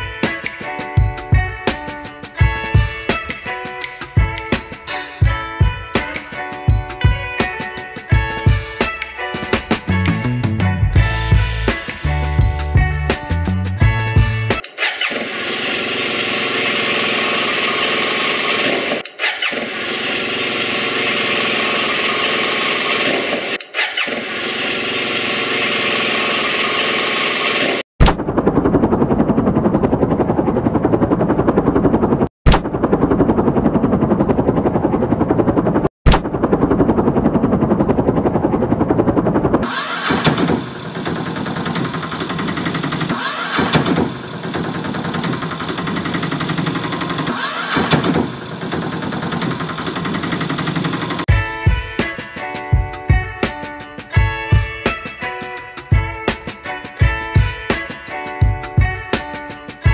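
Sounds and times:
helicopter rotor chopping: 0.0 - 59.9
small engine running: 13.3 - 52.1
motorbike engine running: 13.8 - 51.9.

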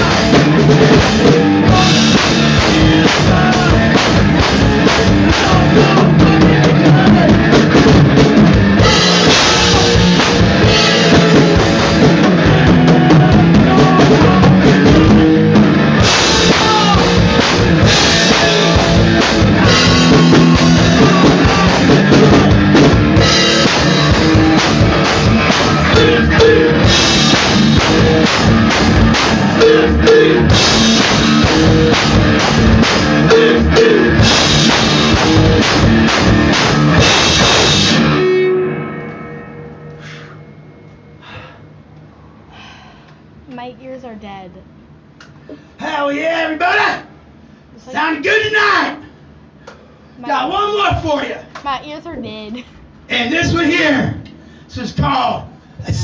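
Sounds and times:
drum kit beat: 0.0 - 38.6, 43.6 - 44.7, 50.3 - 52.6
electric guitar: 0.0 - 41.4.

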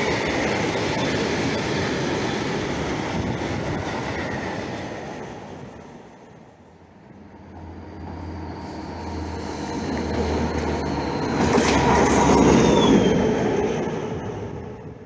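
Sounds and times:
diesel locomotive engine drone: 0.0 - 15.0
high wheel squeal: 7.6 - 13.3.

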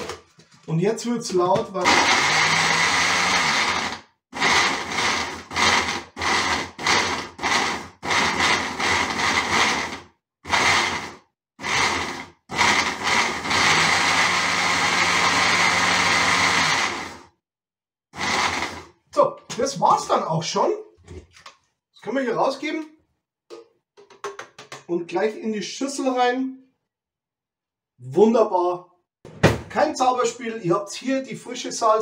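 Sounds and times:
blender chopping in pulses: 1.8 - 17.3, 18.2 - 19.0.

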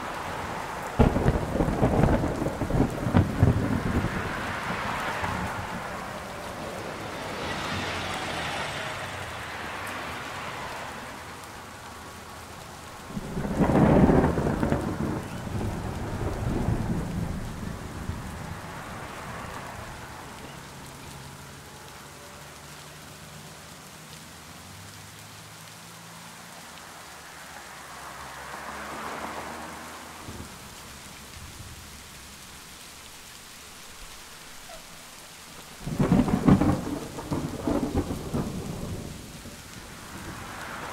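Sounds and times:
steady rain: 0.0 - 40.9
deep thunder rumble: 0.9 - 6.0, 13.1 - 19.0, 35.8 - 40.6.

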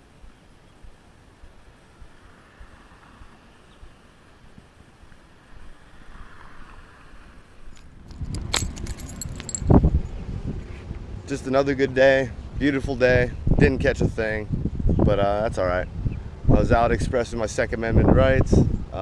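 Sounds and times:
tyre noise from passing cars: 1.9 - 12.6
camera handling rumble: 7.8 - 9.9.

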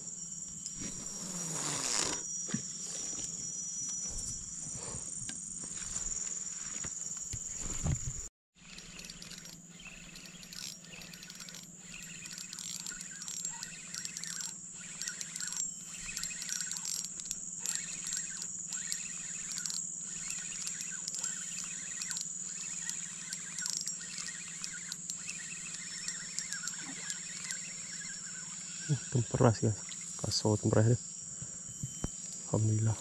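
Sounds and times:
high-pitched insect drone: 0.0 - 33.0.

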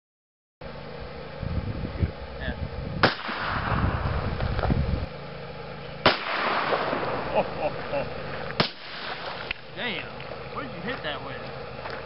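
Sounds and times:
gunshot with echo: 3.0 - 4.0, 6.0 - 7.3, 8.6 - 9.4.

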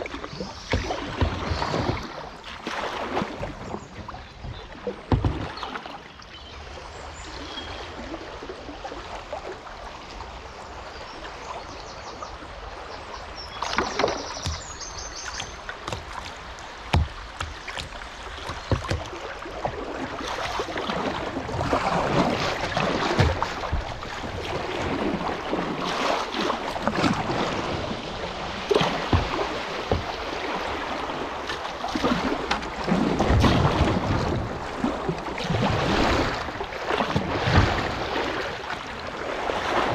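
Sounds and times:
water splashing against kayak: 0.0 - 39.9
river water rushing: 12.1 - 39.9.

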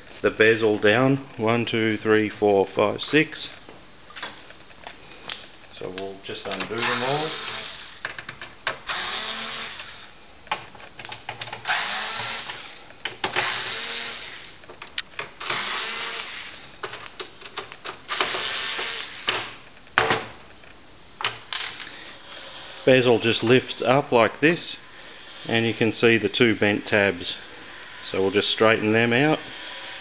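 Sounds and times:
screws clicking and rattling: 6.5 - 10.1, 11.0 - 19.6, 21.5 - 22.1
electric screwdriver running: 6.8 - 8.0, 8.9 - 10.1, 11.6 - 12.8, 13.4 - 14.6, 15.4 - 16.6, 18.1 - 19.4.

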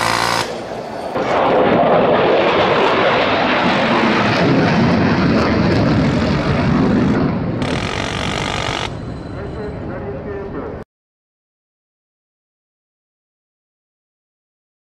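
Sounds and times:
rotary cannon harsh buzz: 0.0 - 1.3, 6.9 - 9.6.

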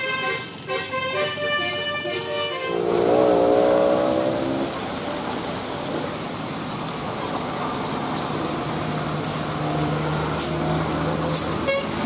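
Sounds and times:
tyres on wet road: 0.0 - 12.0
coach diesel engine passing: 0.2 - 12.0
heavy rain hiss: 2.5 - 12.0.

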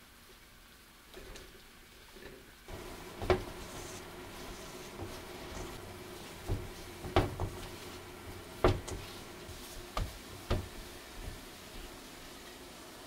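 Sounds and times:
hands kneading dough in bowl: 2.7 - 12.7
metal bowl knocking on sink: 6.4 - 7.8.

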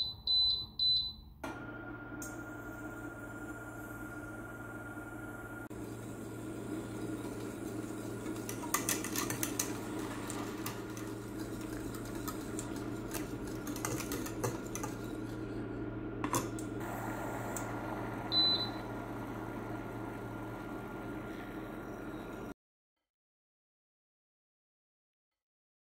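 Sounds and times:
whisk scraping a saucepan: 8.4 - 15.5.

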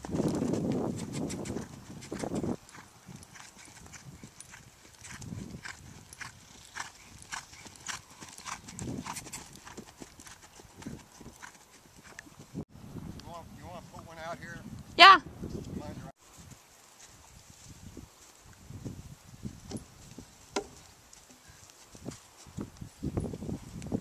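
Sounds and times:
horse hoofbeats cantering on dry ground: 0.0 - 12.6, 16.3 - 24.0.

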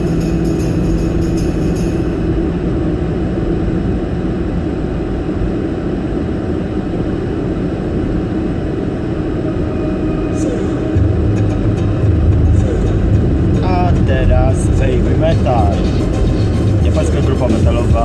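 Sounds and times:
music with jingling percussion: 0.0 - 2.2
road and engine rumble: 0.0 - 18.0.

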